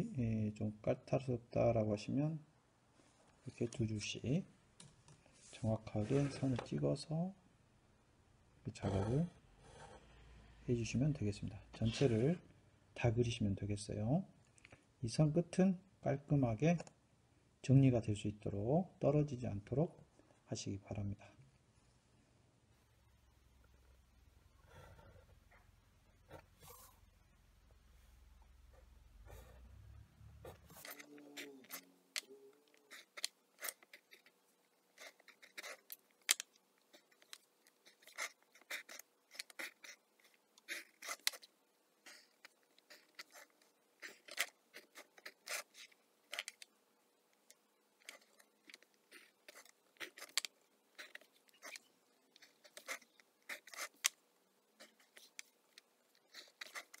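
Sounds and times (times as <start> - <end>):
pencil scratching on paper: 30.4 - 36.0, 36.9 - 46.6, 48.0 - 54.1, 54.8 - 55.5, 56.1 - 57.0.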